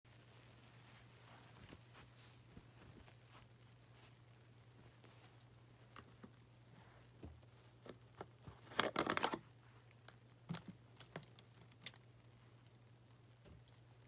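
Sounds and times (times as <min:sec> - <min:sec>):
plastic bottle crinkling: 0:07.8 - 0:09.5.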